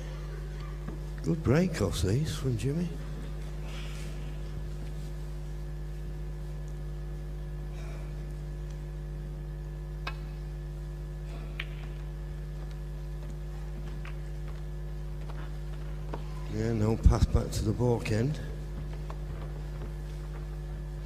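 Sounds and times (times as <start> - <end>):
electrical hum: 0.0 - 21.0
snooker balls clicking: 11.5 - 16.3.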